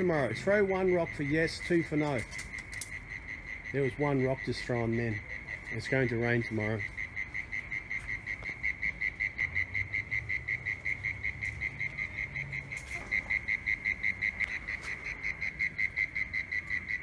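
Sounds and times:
faint clicks: 2.2s - 3.0s.

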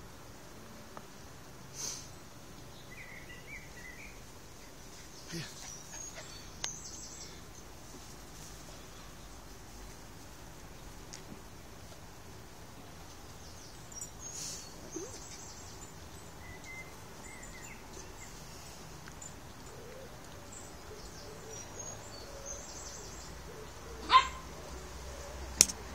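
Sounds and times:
birds chirping and calling: 2.8s - 7.5s, 13.4s - 18.6s, 19.2s - 25.3s.

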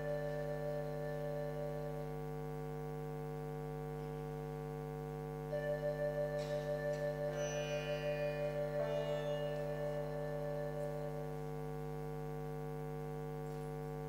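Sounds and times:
high ringing shimmer: 5.5s - 11.5s
pulsing upper tone: 5.5s - 11.8s
ambient drone music: 5.6s - 11.5s.

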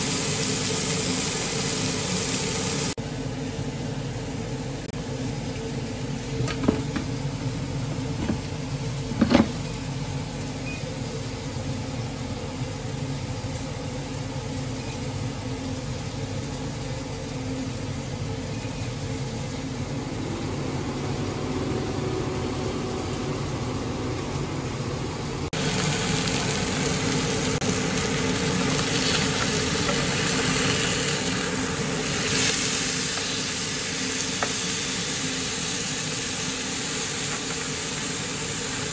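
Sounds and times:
fish sizzling in grill pan: 0.0s - 3.0s, 25.6s - 38.9s
air fryer fan hum: 0.0s - 38.9s.

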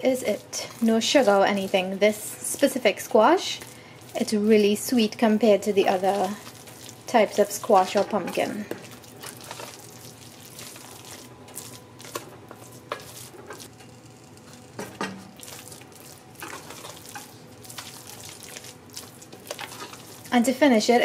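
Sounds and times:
faint sizzle of cooking: 0.0s - 21.0s
wooden spoon scraping a pot: 16.4s - 20.3s.

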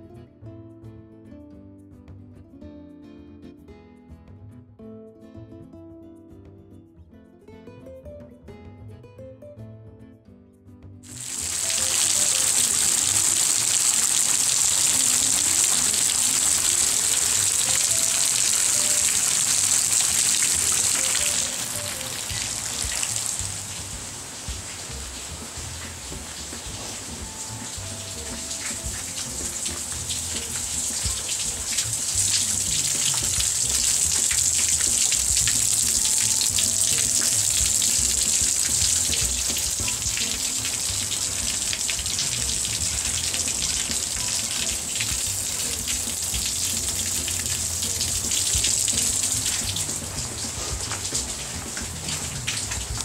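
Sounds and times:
rain falling: 11.0s - 53.0s.

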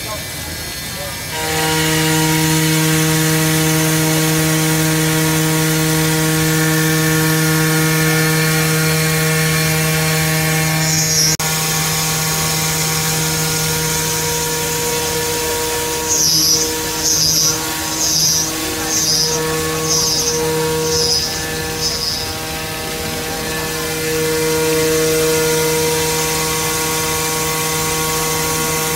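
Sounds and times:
glass grinding machine hum: 0.0s - 28.9s
wet grinding hiss: 16.0s - 23.8s.

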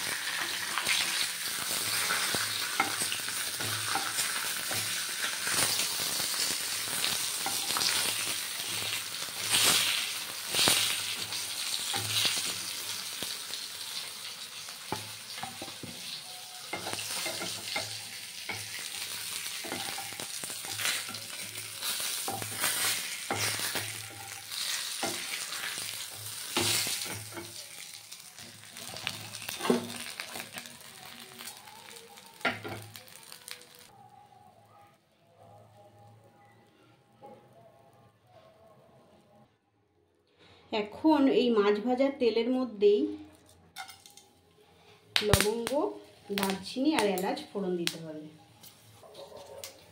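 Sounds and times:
fish sizzling in hot oil: 0.0s - 33.9s, 45.2s - 49.0s.

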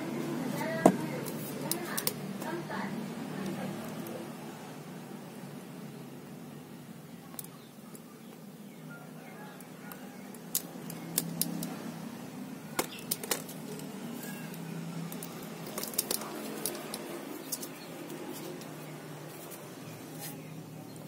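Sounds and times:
sharp handling clicks and rustles: 0.7s - 2.6s, 12.8s - 20.5s.

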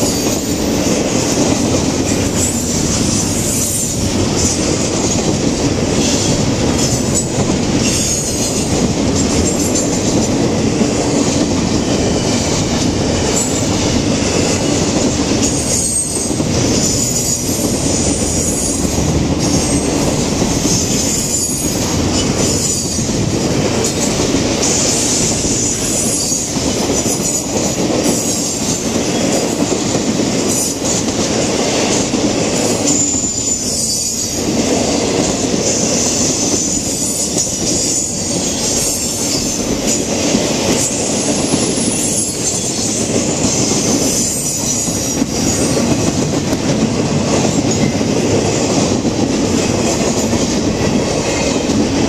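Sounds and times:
clacking over rail joints: 0.0s - 52.0s
train wheels on rail: 0.0s - 52.0s.

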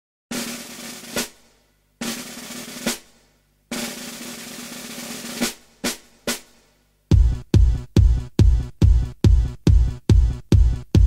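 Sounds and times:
snare drum rolls: 0.3s - 7.7s.

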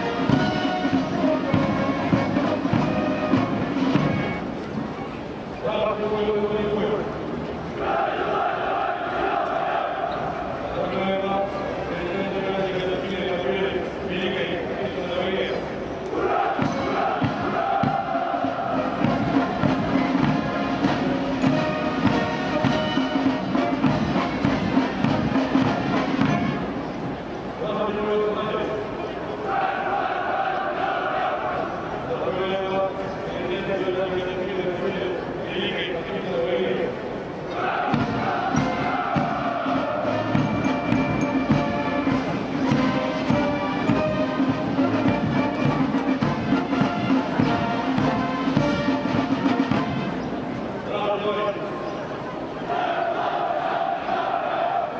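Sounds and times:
steady drum beat: 0.0s - 4.4s, 16.5s - 26.6s, 37.8s - 50.1s
brass band playing a march: 0.0s - 5.1s, 7.8s - 10.6s, 16.2s - 27.4s, 37.6s - 50.8s.

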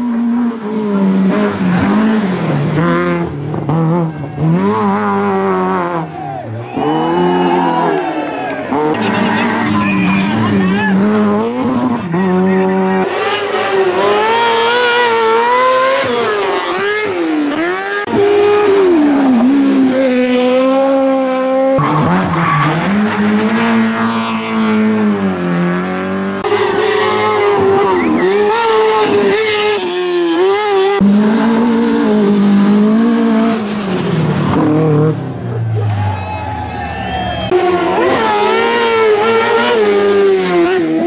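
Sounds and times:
rally car engines revving: 0.0s - 41.0s.

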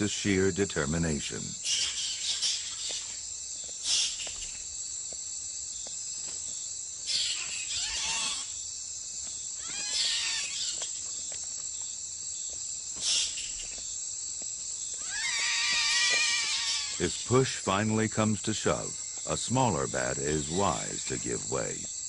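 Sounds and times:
night insects chirring: 0.0s - 22.0s
bats squealing: 1.6s - 3.2s, 3.8s - 4.7s, 7.0s - 8.6s, 9.6s - 11.0s, 13.0s - 13.8s, 14.9s - 21.9s.

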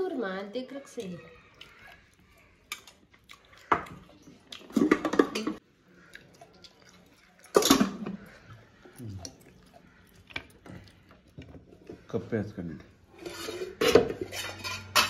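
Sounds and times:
spoon clattering on a plate: 13.8s - 15.0s.

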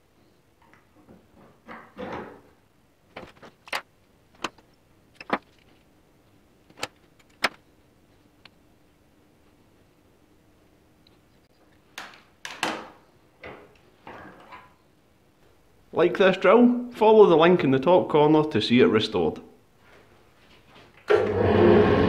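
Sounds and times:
metal bar scraping in vise: 21.1s - 22.0s.

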